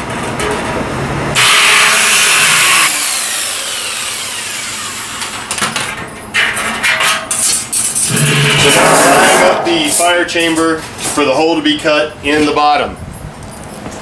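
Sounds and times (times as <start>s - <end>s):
jigsaw cutting sheet steel: 1.4s - 5.6s
motor winding down whine: 1.6s - 5.4s
knocks and clatter: 5.5s - 10.7s.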